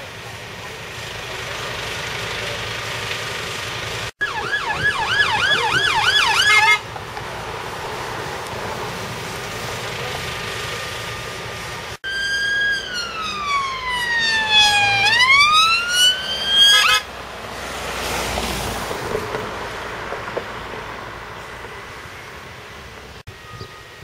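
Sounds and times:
siren wailing and chirping: 0:04.2 - 0:06.8, 0:12.0 - 0:17.1
vehicle driving past: 0:06.8 - 0:23.0.

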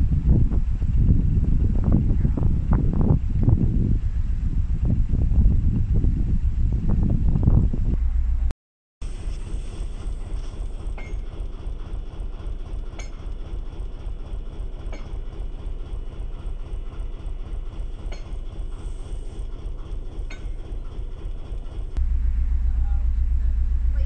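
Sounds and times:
boat engine idling: 0:09.7 - 0:24.0.

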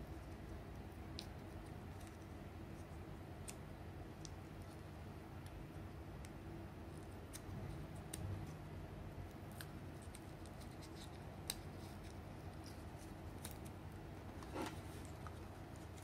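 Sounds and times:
tape crackles and ticks: 0:00.7 - 0:08.6.

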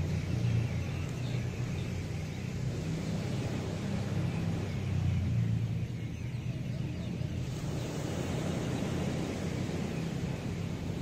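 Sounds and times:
low engine drone: 0:00.0 - 0:11.0
surf washing on a beach: 0:00.0 - 0:11.0.

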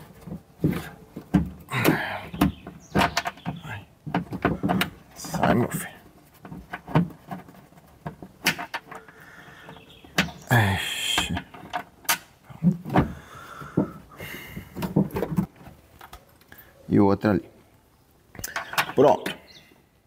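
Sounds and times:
clicks and knocks of plastic parts: 0:00.1 - 0:10.5, 0:11.1 - 0:16.3, 0:18.4 - 0:19.4.

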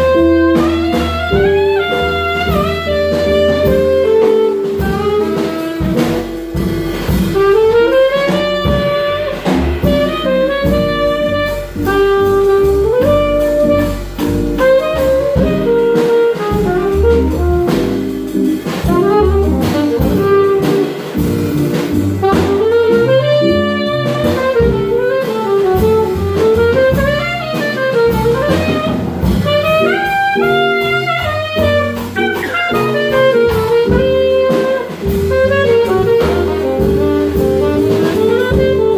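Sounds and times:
drum kit: 0:00.0 - 0:38.9
electric guitar: 0:00.0 - 0:38.9
saxophone solo: 0:00.0 - 0:38.9
upright bass: 0:00.0 - 0:38.9.

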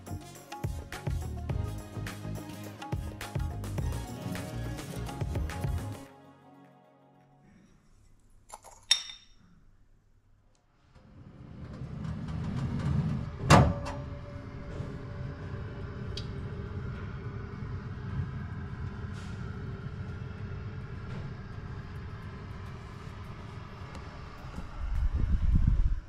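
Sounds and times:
oven fan humming: 0:11.2 - 0:26.0.

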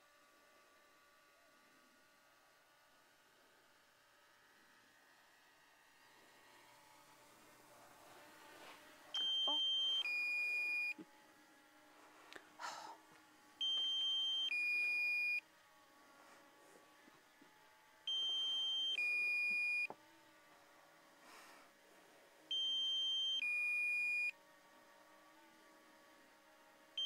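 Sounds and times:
two-tone electronic warning beep: 0:09.2 - 0:11.0, 0:13.6 - 0:15.4, 0:18.1 - 0:19.9, 0:22.5 - 0:24.3.

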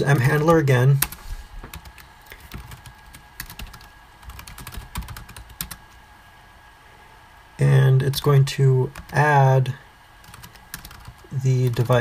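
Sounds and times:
computer keyboard typing: 0:00.0 - 0:05.8, 0:08.9 - 0:09.3, 0:10.2 - 0:12.0.

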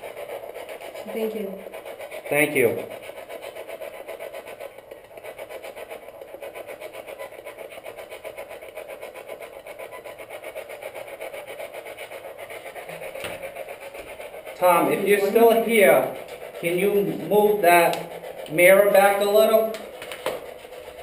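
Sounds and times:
radio static pulsing: 0:12.1 - 0:20.0.

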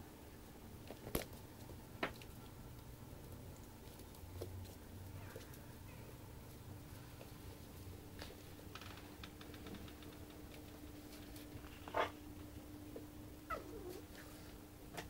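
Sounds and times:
faint steady hum: 0:00.0 - 0:15.0
puppy squeaking and whimpering: 0:13.4 - 0:14.1.

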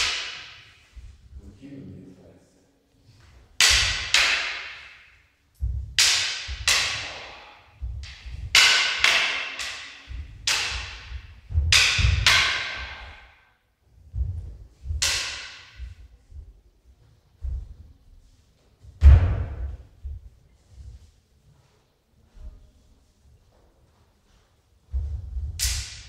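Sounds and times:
wooden swords clashing: 0:00.0 - 0:00.8, 0:03.5 - 0:13.5, 0:14.3 - 0:16.1, 0:25.0 - 0:26.0
low thuds: 0:05.6 - 0:08.7, 0:10.0 - 0:13.3, 0:14.0 - 0:15.1, 0:18.9 - 0:20.4, 0:24.9 - 0:26.0.

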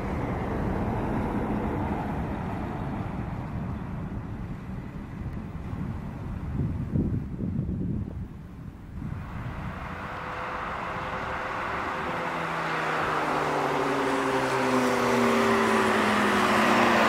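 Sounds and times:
truck diesel engine hum: 0:00.0 - 0:06.9, 0:08.3 - 0:17.0.

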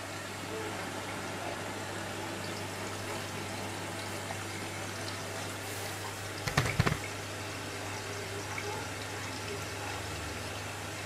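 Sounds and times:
washing machine water rushing: 0:00.0 - 0:11.0
loud knocks: 0:06.4 - 0:07.1.

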